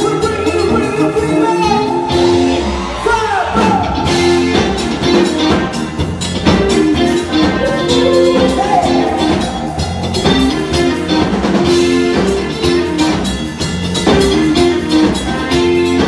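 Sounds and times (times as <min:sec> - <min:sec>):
bass guitar: 0:00.0 - 0:16.0
electric guitar: 0:00.0 - 0:16.0
live band playing dance music: 0:00.0 - 0:16.0
drum beat: 0:03.4 - 0:16.0
person singing: 0:07.3 - 0:10.7.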